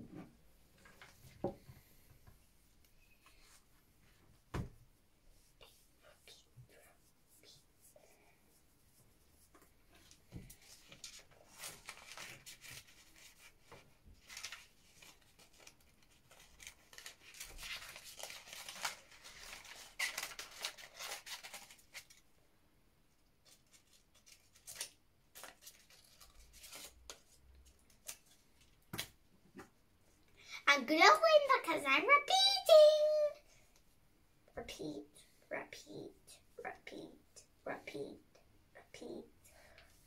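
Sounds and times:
paper rustling: 9.9s - 22.3s, 23.4s - 29.1s.

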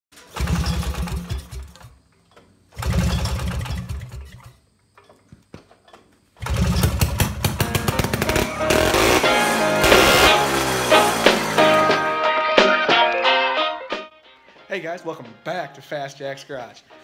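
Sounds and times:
snowmobile engine starting: 0.1s - 2.0s, 2.7s - 4.6s, 6.4s - 12.2s.

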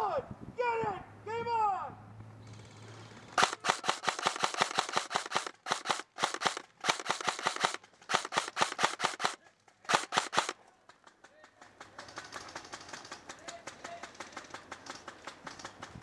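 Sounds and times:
airsoft guns firing bursts: 3.4s - 16.0s.

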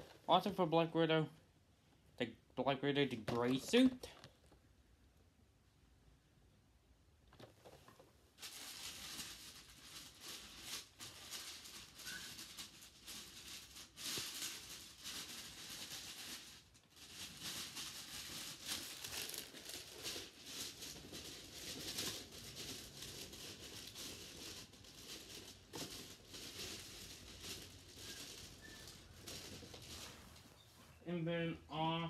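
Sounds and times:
toy packaging crinkling: 3.2s - 4.3s, 8.4s - 30.2s.

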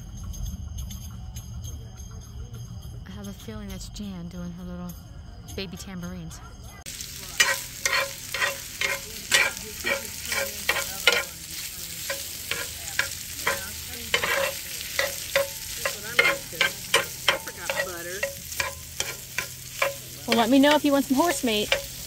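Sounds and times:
meat sizzling in a skillet: 6.9s - 22.0s
utensil scraping pan: 7.3s - 22.0s.

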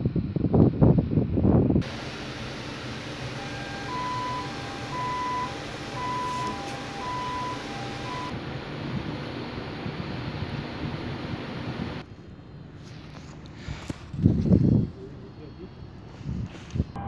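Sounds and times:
electronic two-tone alarm: 3.2s - 8.4s.

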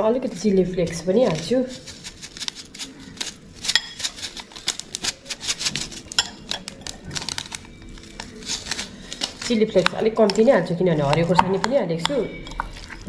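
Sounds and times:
kitchenware clicks and taps: 6.1s - 7.5s, 9.8s - 12.8s.

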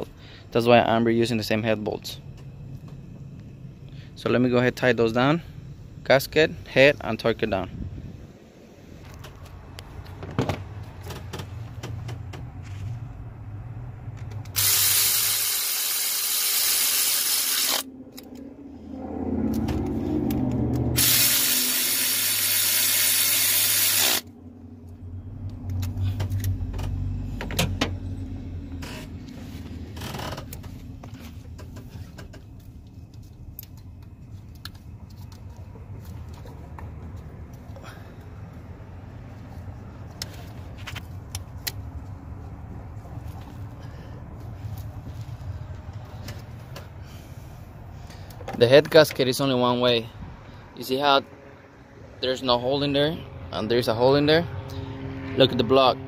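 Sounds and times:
electric ratchet running: 14.5s - 17.9s, 21.0s - 24.3s.

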